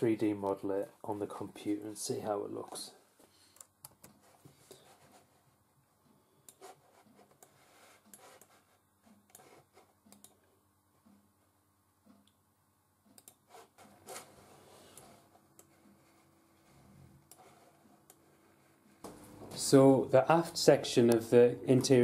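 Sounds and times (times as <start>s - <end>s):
computer mouse clicking: 3.5s - 4.3s, 9.3s - 10.4s, 13.1s - 16.2s.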